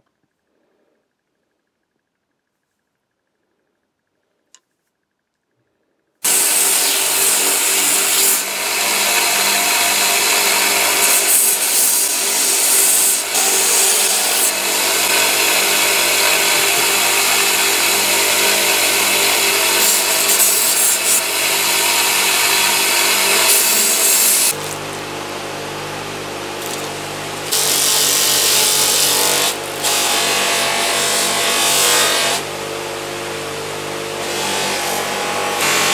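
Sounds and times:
belt grinder rasping on metal: 6.2s - 24.9s, 26.6s - 32.4s
bench grinder buffing wheels humming: 6.2s - 35.9s
grinder motor tone: 6.3s - 30.5s.

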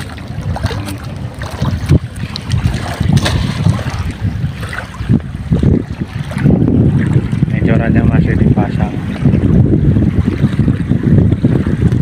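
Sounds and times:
small waves lapping: 0.0s - 12.0s
wind buffeting microphone: 0.0s - 12.0s.

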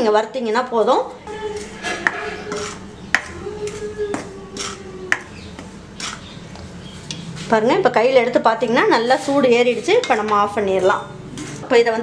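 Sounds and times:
metal spoon scraping metal pan: 1.6s - 3.3s.

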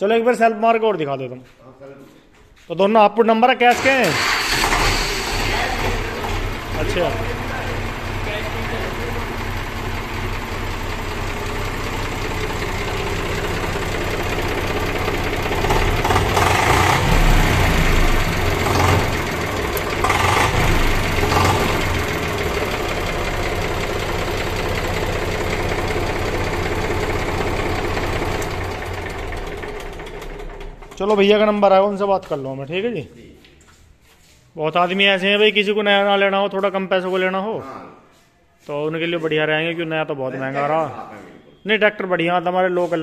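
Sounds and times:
tractor diesel engine idling: 3.7s - 31.6s.

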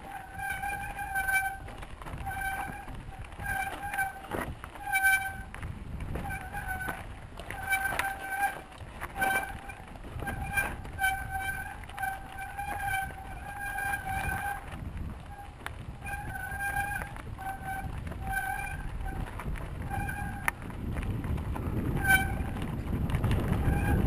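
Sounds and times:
bicycle brakes squealing: 0.0s - 20.7s, 21.6s - 24.0s
bike rattling over rocks: 0.0s - 24.0s
wind rumble on microphone: 0.0s - 24.0s.

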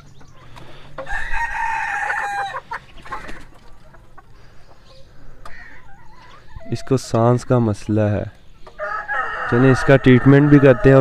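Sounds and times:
chicken clucking: 0.0s - 11.0s
rooster crowing: 1.0s - 2.6s, 8.8s - 11.0s.

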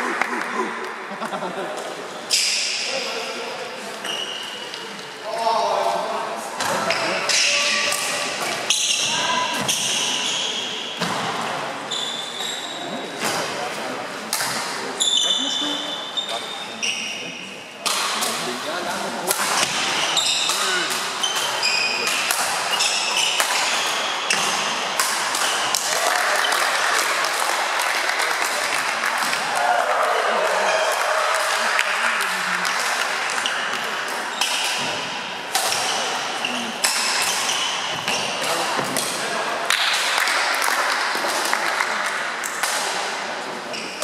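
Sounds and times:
shoes squeaking on hall floor: 2.3s - 2.9s, 4.0s - 5.0s, 6.8s - 13.4s, 15.0s - 17.4s, 19.6s - 25.8s, 33.4s - 38.8s, 43.7s - 44.0s
racket hitting shuttlecock: 19.3s - 27.5s, 32.6s - 41.7s.

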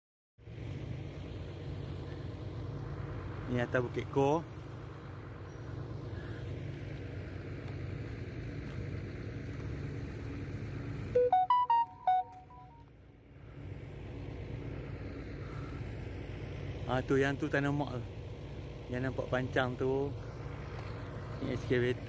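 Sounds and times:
excavator diesel engine hum: 0.4s - 22.0s
phone alert jingle: 11.2s - 12.8s.

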